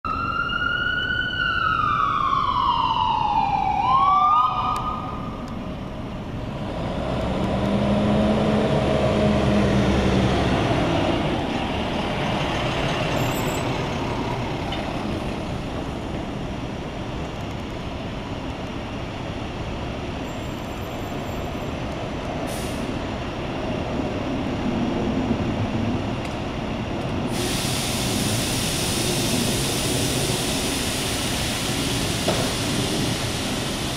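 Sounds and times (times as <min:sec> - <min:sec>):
emergency vehicle siren: 0:00.0 - 0:05.8
street traffic: 0:00.0 - 0:33.9
heavy vehicle engine: 0:05.1 - 0:33.9.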